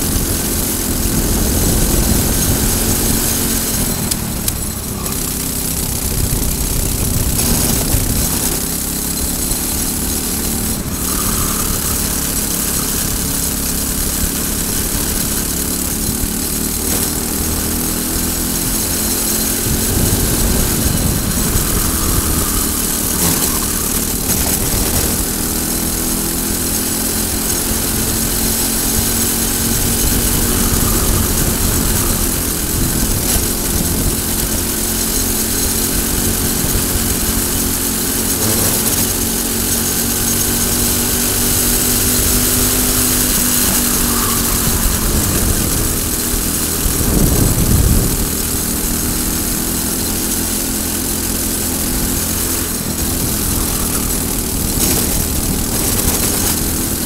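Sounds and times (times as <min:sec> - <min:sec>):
kart engine revving: 0:00.0 - 0:57.0
wind rushing past: 0:19.1 - 0:26.3.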